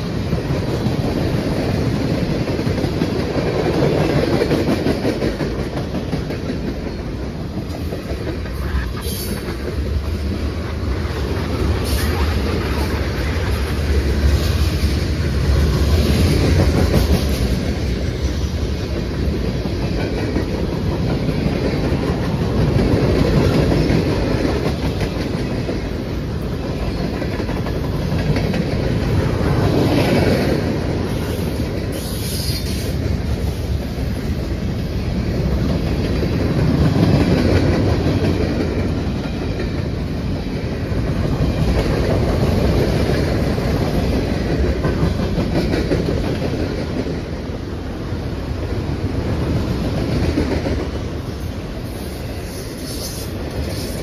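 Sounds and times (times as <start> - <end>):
clickety-clack over rail joints: 0.0 - 54.0
freight train rumbling past: 0.0 - 54.0.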